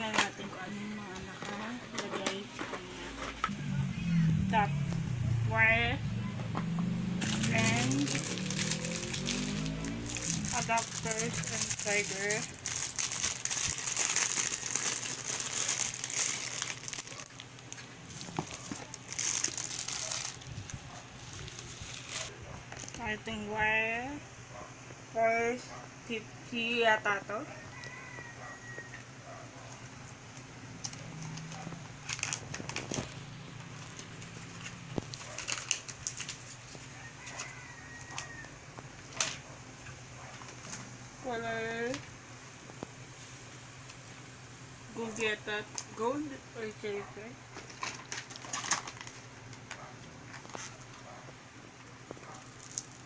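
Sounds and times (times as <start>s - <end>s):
plastic wrapping crinkling: 7.2s - 23.0s, 30.8s - 38.2s, 47.6s - 51.0s, 52.1s - 53.0s.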